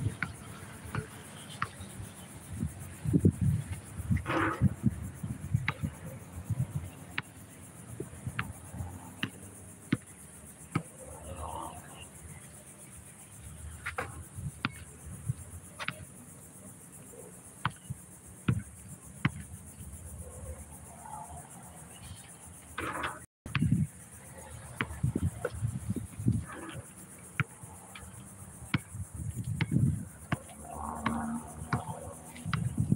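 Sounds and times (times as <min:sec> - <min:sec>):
basketball bouncing on asphalt: 0:00.0 - 0:06.0, 0:06.6 - 0:11.0, 0:12.5 - 0:16.4, 0:17.4 - 0:20.0, 0:22.8 - 0:24.0, 0:24.7 - 0:32.9
insects droning: 0:00.0 - 0:32.9.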